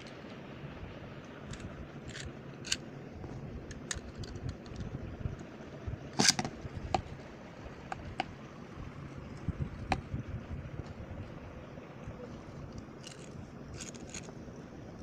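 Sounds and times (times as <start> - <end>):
clatter of clicks: 3.7 - 5.5
plastic and metal toy clicks and taps: 7.9 - 8.3.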